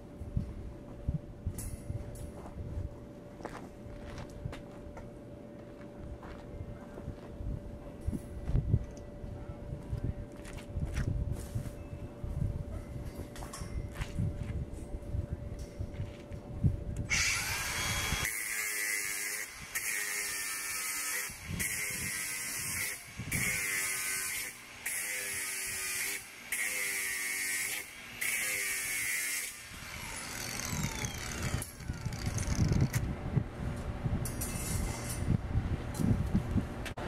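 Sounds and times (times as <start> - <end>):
electric power tool bursts: 17.1 - 32.6.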